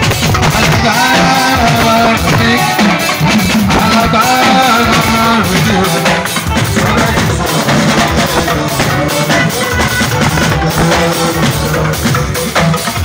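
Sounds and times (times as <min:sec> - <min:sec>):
drum kit beat: 0:00.0 - 0:13.0
electric guitar: 0:00.0 - 0:13.0
person singing: 0:00.0 - 0:13.0.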